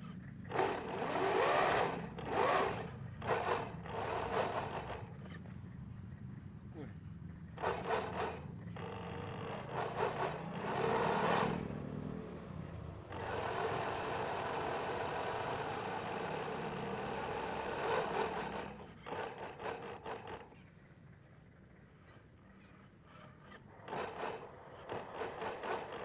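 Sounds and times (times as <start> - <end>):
electric motor whirring: 0.5 - 5.3.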